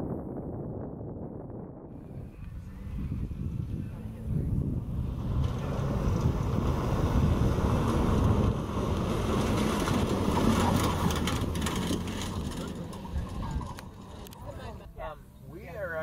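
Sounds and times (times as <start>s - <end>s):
truck engine running hard: 2.6s - 14.6s
tyres scrabbling on loose dirt: 5.3s - 14.8s.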